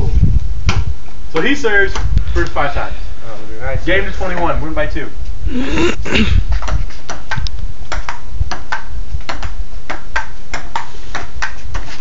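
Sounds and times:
ping-pong ball taps: 7.1 - 11.9.

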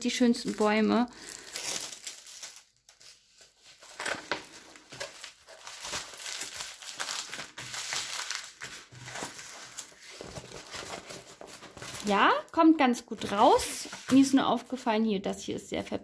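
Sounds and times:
plastic film crinkling: 0.0 - 12.5.

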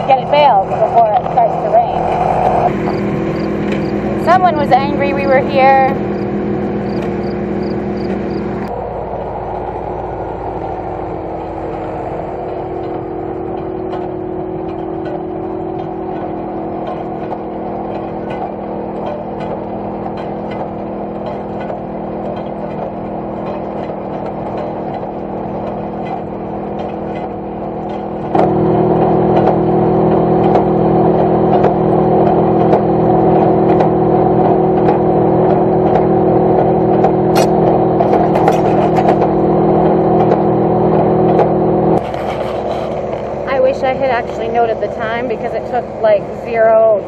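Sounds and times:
baler machinery clattering: 0.0 - 47.0
engine droning: 0.0 - 47.0.

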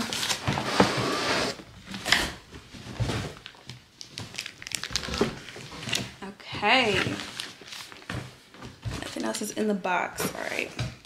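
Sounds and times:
cardboard rustling and crinkling: 2.4 - 9.6.

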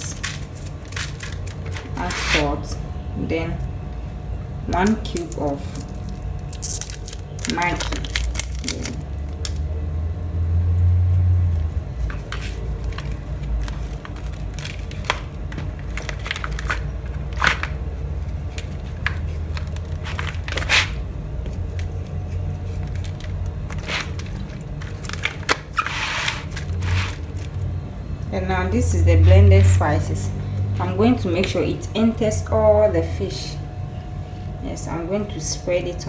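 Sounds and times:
foil wrapper crinkling: 0.0 - 2.1, 4.8 - 9.6, 12.0 - 27.7
low background hum: 0.0 - 36.0.

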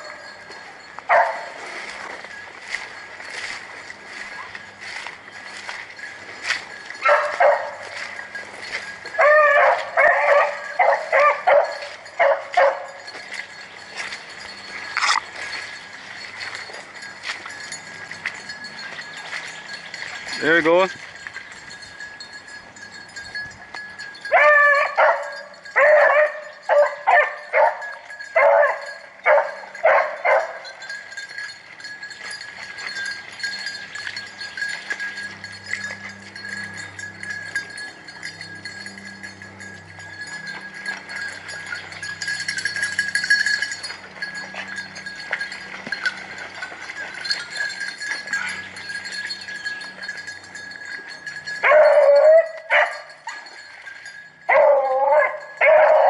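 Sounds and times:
hounds baying: 0.0 - 20.8, 24.0 - 56.0.

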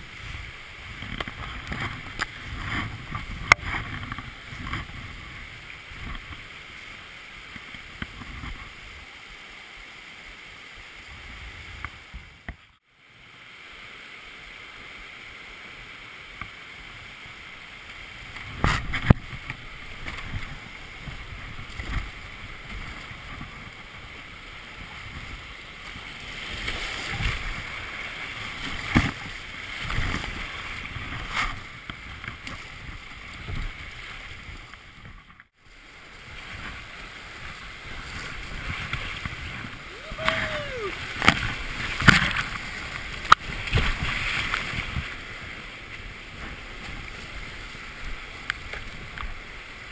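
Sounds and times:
whitewater rushing: 35.6 - 49.9.

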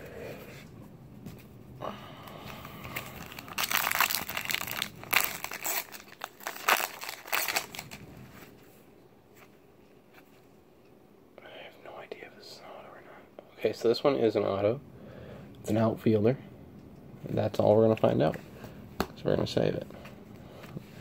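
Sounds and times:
wrapper tearing and crinkling: 2.8 - 8.0.

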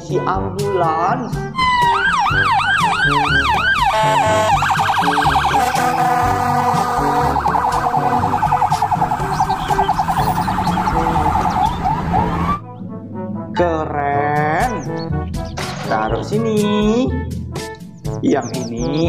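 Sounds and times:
background music: 0.0 - 19.0
toy electronic siren: 1.6 - 12.6.

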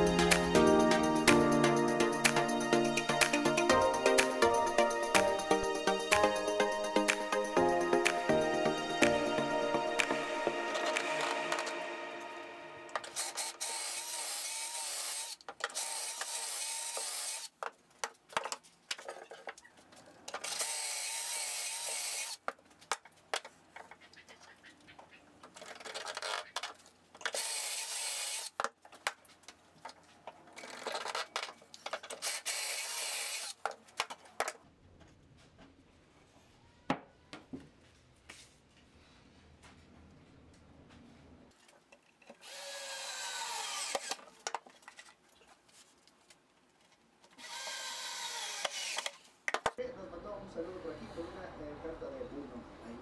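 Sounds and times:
cordless drill drilling into board: 13.2 - 17.5, 20.5 - 22.4, 27.4 - 28.5, 32.2 - 33.6, 42.4 - 44.2, 47.4 - 49.2.

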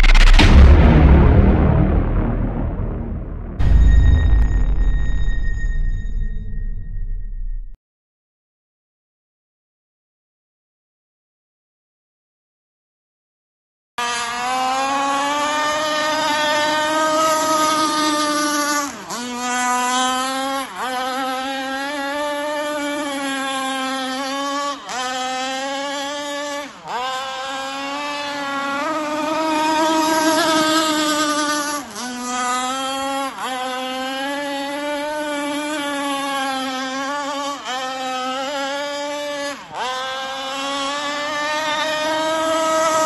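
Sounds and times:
model boat motor droning: 14.0 - 43.0.

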